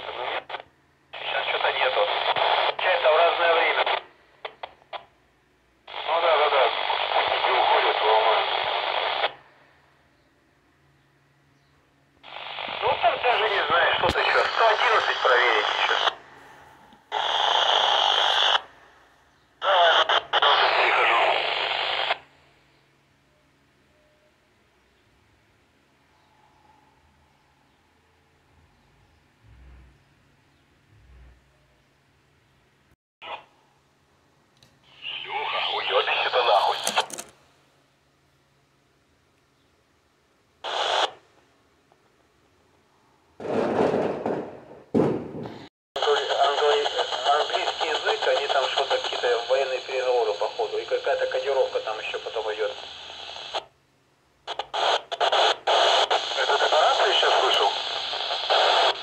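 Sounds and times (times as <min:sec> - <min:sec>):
radio static hiss: 0:00.0 - 0:05.2, 0:05.8 - 0:09.7, 0:12.2 - 0:22.6, 0:33.2 - 0:33.5, 0:34.8 - 0:37.3, 0:40.6 - 0:41.3, 0:46.0 - 0:53.8, 0:54.4 - 0:59.0
garbled radio voice: 0:01.2 - 0:04.0, 0:05.9 - 0:09.3, 0:12.6 - 0:16.3, 0:19.6 - 0:22.2, 0:34.9 - 0:37.1, 0:46.0 - 0:53.0, 0:55.7 - 0:59.0.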